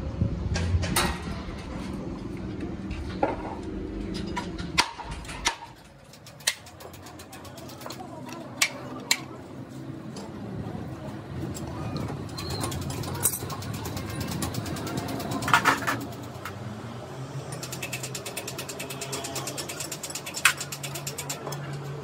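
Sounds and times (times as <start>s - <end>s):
spanner clinking on metal: 17.5s - 22.0s.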